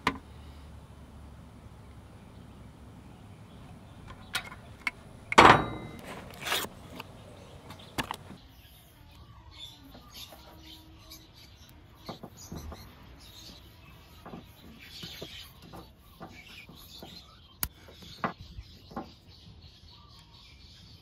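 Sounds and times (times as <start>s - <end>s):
rustling of tape handling: 4.0s - 8.4s.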